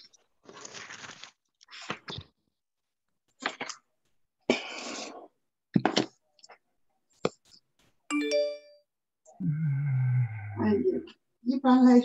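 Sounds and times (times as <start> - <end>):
multi-tone chime: 8.1 - 8.8.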